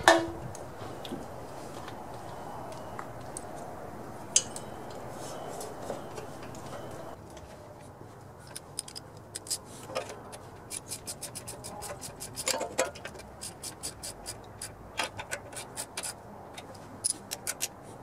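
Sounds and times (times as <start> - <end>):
ratchet wrench clicking: 10.7 - 16.2.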